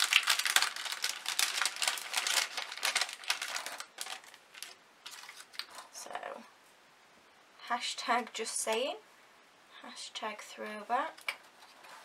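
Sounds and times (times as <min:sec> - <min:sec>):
plastic packaging crinkling: 0:00.0 - 0:05.9.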